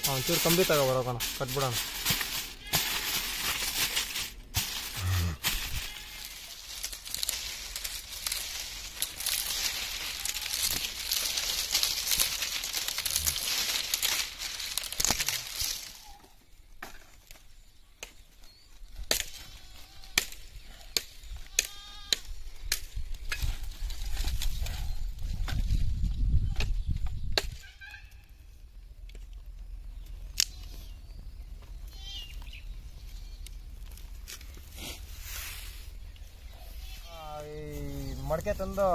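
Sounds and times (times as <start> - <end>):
dry palm fronds rustling: 0.0 - 38.9
dry sticks clacking together: 6.7 - 16.2.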